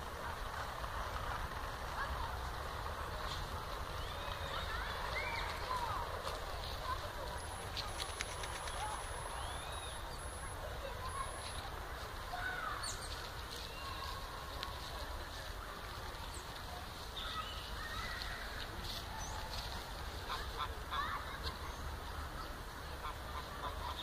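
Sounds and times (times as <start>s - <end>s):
low background noise: 0.0s - 24.0s
waterfowl honks and quacks: 20.2s - 21.1s, 22.9s - 24.0s.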